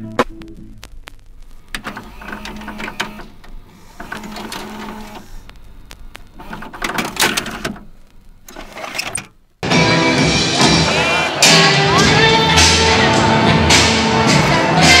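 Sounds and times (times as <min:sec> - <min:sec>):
rhythmic music beat over speakers: 0:00.0 - 0:01.0, 0:09.6 - 0:15.0
crowd noise: 0:09.6 - 0:15.0.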